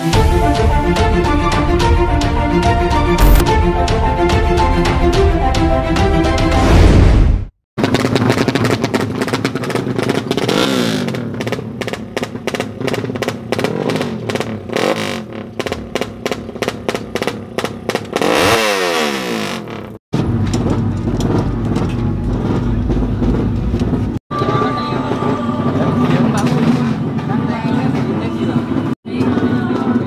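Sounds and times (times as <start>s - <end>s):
motorcycle engine revving: 3.2s - 3.6s, 7.8s - 29.5s.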